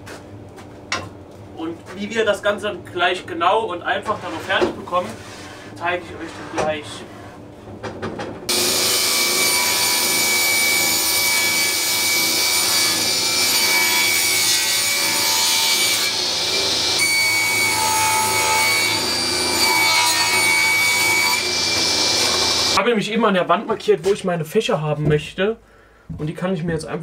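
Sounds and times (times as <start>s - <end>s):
table saw cutting wood: 8.5s - 22.8s.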